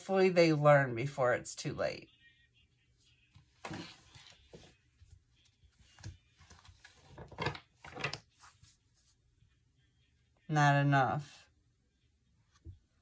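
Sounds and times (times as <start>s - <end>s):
cards being shuffled: 3.6s - 8.8s.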